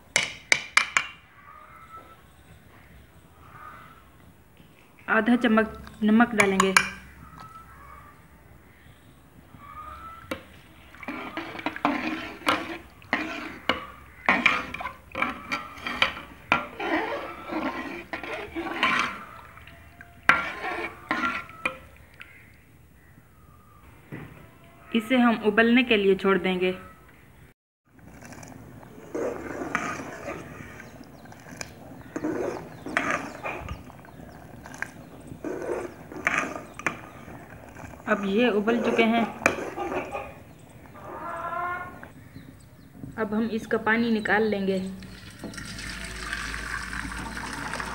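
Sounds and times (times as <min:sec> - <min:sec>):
water sloshing: 0:09.6 - 0:22.6, 0:28.0 - 0:41.0, 0:44.9 - 0:47.9
metal spoon scraping pot: 0:09.8 - 0:22.0, 0:28.0 - 0:41.0, 0:44.9 - 0:47.9.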